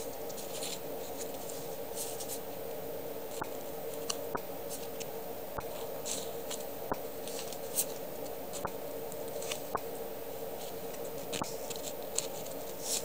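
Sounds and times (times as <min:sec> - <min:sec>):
sticker sheets rustling: 0:00.0 - 0:02.5, 0:05.7 - 0:09.8, 0:10.6 - 0:13.0
steady low hum: 0:00.0 - 0:13.0.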